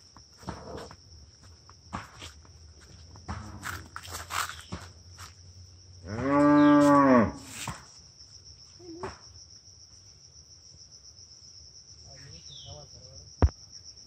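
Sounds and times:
insects droning: 0.0s - 14.0s
cow mooing: 6.0s - 7.4s.

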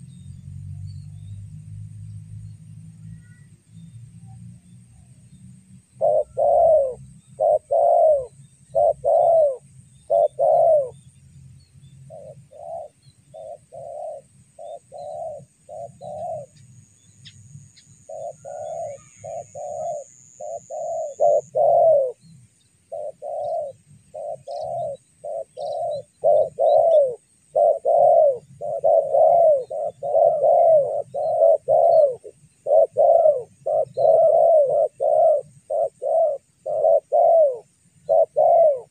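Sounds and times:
dove cooing: 6.0s - 11.1s, 12.1s - 16.6s, 18.0s - 22.2s, 22.9s - 38.9s.

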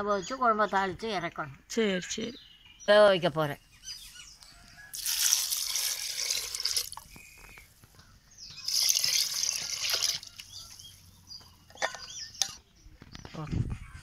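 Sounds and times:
water poured into pot: 4.9s - 7.1s, 8.7s - 10.4s.

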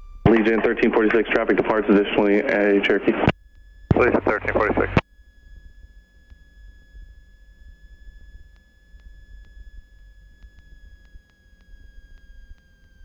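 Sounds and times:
faint low engine drone: 0.0s - 3.3s, 3.9s - 5.0s.

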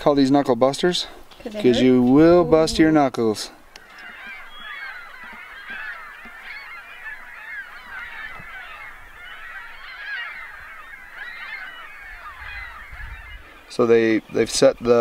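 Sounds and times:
geese honking in flight: 3.8s - 14.5s.

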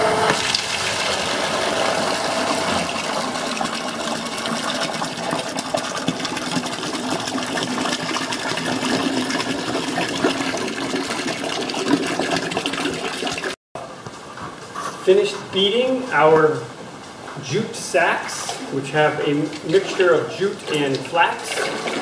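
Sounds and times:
pulp pouring into plastic bucket: 0.4s - 13.6s, 20.6s - 22.0s.

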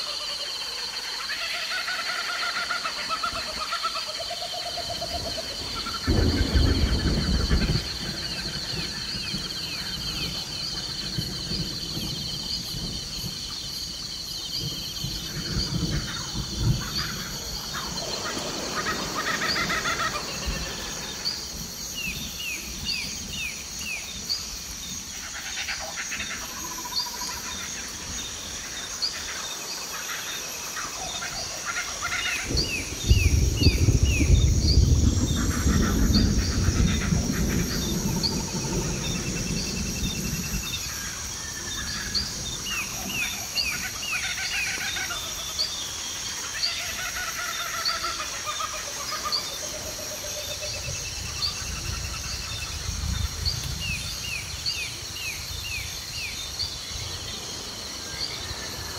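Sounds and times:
birds chirping: 0.0s - 58.9s
insect drone: 0.0s - 58.9s
thunder rumble: 4.6s - 29.0s, 30.5s - 45.4s.

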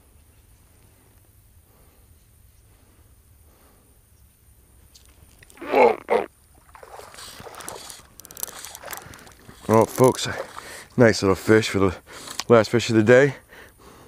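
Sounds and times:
rough splashing and scuffling: 5.0s - 12.5s
man calling out: 5.6s - 6.3s.

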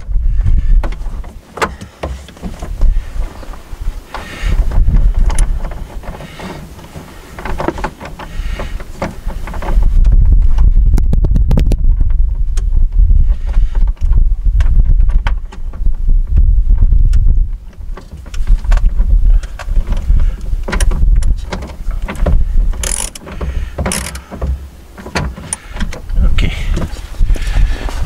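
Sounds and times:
wind buffeting the microphone: 0.0s - 28.0s
ratchet wrench clicking: 22.8s - 23.2s, 23.9s - 24.2s.

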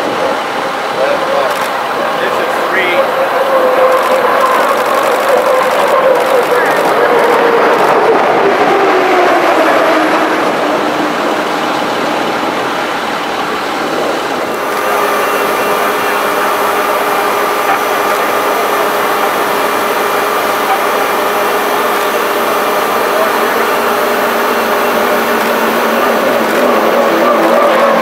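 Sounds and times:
turbine engine whining: 0.0s - 28.0s.

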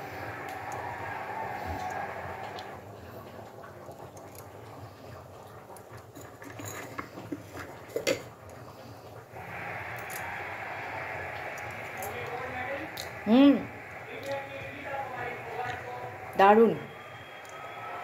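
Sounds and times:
background hiss: 8.4s - 18.0s.

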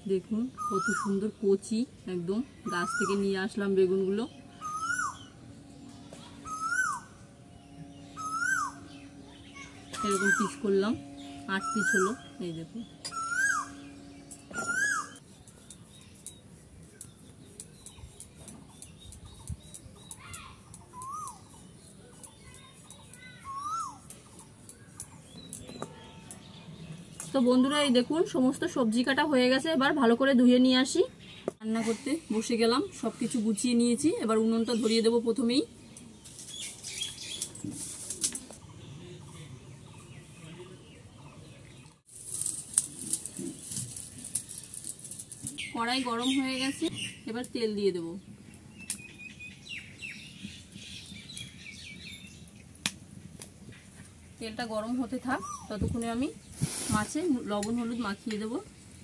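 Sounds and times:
bird whistling: 4.4s - 5.4s, 6.1s - 15.2s, 20.9s - 21.6s, 23.4s - 24.1s
dry sticks rustling and clicking: 9.9s - 10.6s, 14.2s - 27.5s, 35.9s - 38.6s, 42.1s - 47.5s.

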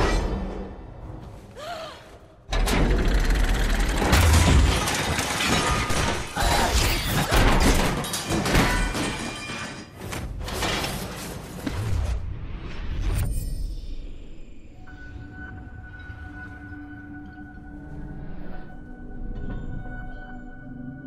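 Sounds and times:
metal debris crashing: 3.7s - 11.5s
glass shattering: 4.1s - 10.0s.

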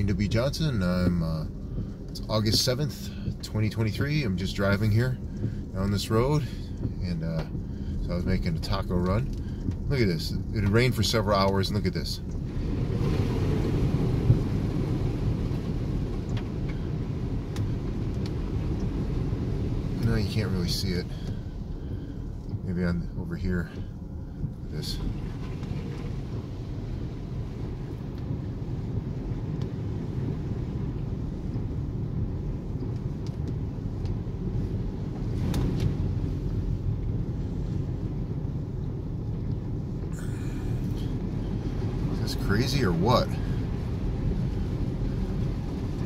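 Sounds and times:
car driving rumble: 0.0s - 46.0s.

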